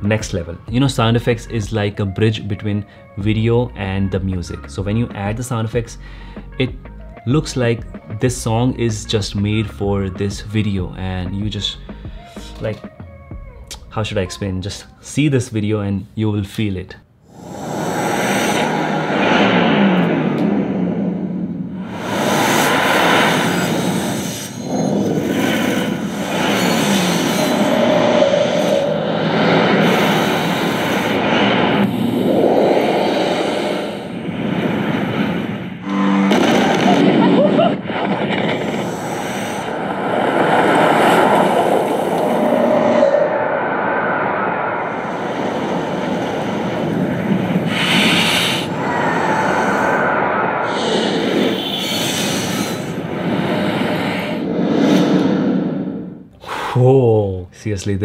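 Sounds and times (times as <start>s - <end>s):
rising sweep: 17.3s - 56.3s
falling sweep: 17.3s - 56.4s
whooshes: 17.3s - 56.4s
rumbling transitions: 17.3s - 56.6s
wind: 17.8s - 55.8s.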